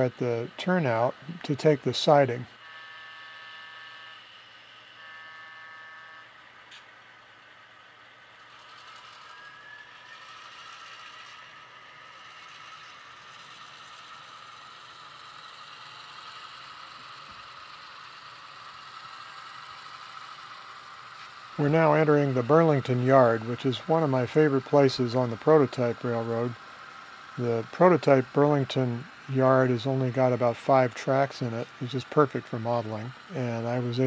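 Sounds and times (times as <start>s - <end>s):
model locomotive running noise: 0.0s - 34.0s.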